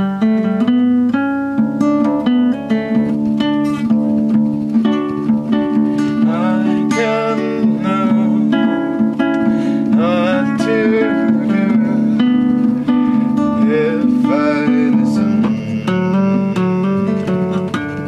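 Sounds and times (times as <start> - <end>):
strummed acoustic guitar: 0.0 - 18.0
man singing: 6.0 - 18.0.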